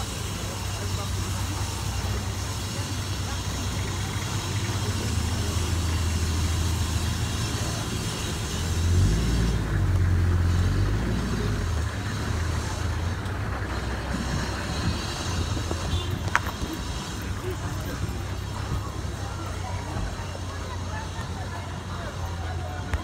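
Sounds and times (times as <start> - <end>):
outdoor noise: 0.0 - 23.0
vehicle engine running: 0.0 - 23.0.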